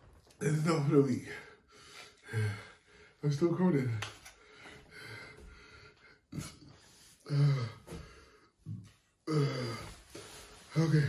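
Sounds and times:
man breathing: 1.3s - 3.2s, 4.2s - 11.0s.

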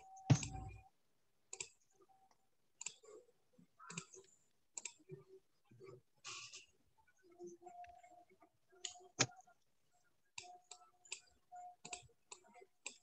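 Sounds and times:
dull thump: 0.3s - 0.8s.

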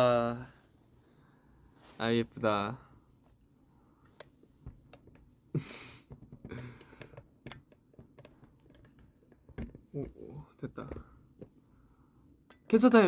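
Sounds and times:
phone handling clicks and rubs: 7.0s - 10.1s.

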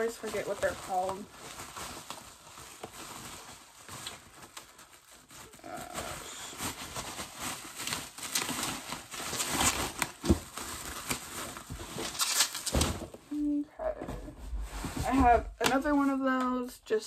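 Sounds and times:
packaging rustling: 0.0s - 13.4s.

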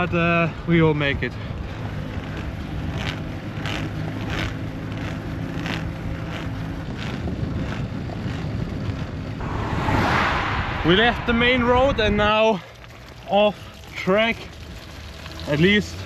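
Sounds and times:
tyre and wind noise: 1.6s - 13.3s
rush of noise: 9.4s - 12.9s.

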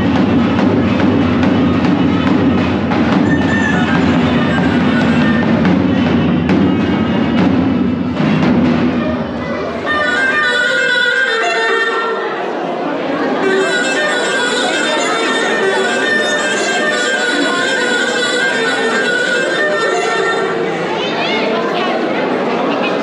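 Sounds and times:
heavy drum beat: 0.0s - 10.3s.

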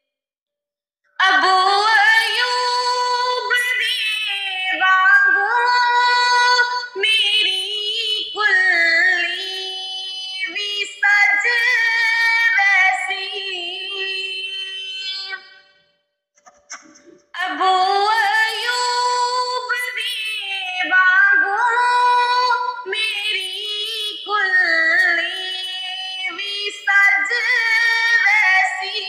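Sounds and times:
high voice singing unaccompanied: 1.2s - 15.7s, 16.7s - 29.0s.

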